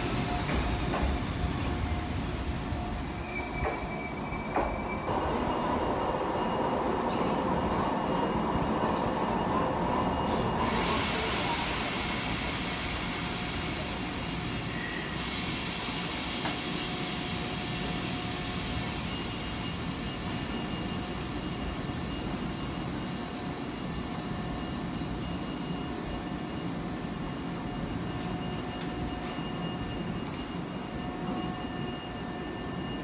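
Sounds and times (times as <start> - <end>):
hiss: 10.6 - 20.9.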